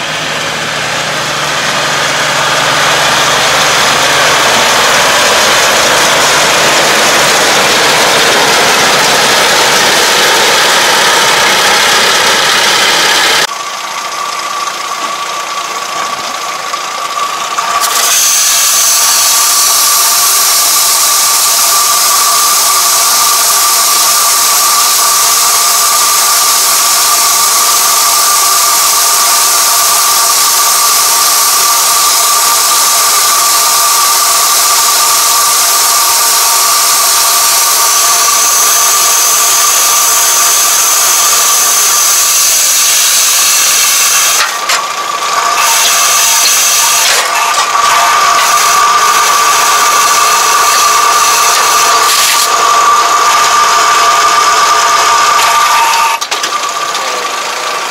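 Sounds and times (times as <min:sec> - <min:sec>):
bale wrapper running with whine: 0:00.0 - 0:57.9.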